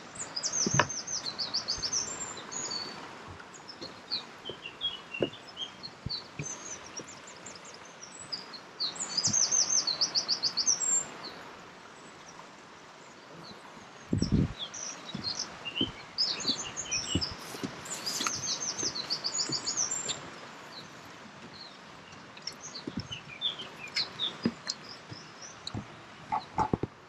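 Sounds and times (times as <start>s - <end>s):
songbirds chirping: 0.0s - 27.0s
footsteps on wooden planks: 0.3s - 7.7s, 14.1s - 27.0s.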